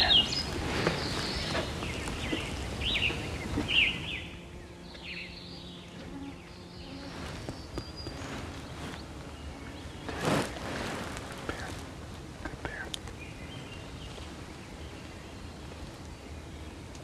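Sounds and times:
bird chirps: 0.0 - 10.3
flying insects buzzing: 0.0 - 17.0.

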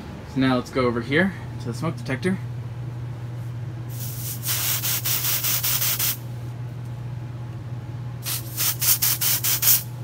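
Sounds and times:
steady low hum: 0.0 - 10.0
aerosol can spraying hisses: 3.9 - 6.2, 8.3 - 9.8.

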